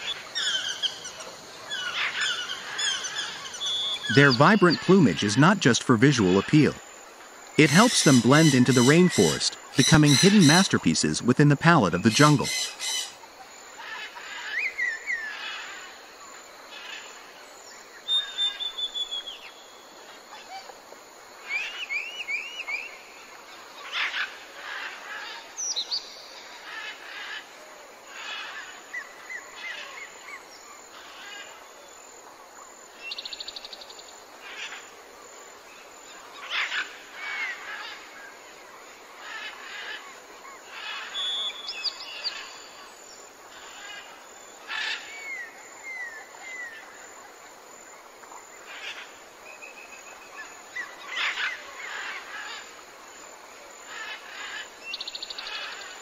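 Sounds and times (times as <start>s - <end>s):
birds whistling and chirping: 0.0s - 5.3s, 7.6s - 11.3s, 11.9s - 13.2s, 18.1s - 19.6s, 41.1s - 42.5s
bird trill: 7.6s - 13.2s.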